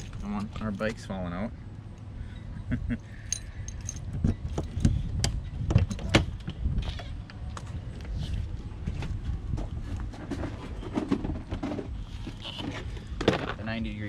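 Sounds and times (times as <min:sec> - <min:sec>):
steady low rumble: 0:00.0 - 0:14.0
keys jangling: 0:03.2 - 0:04.9.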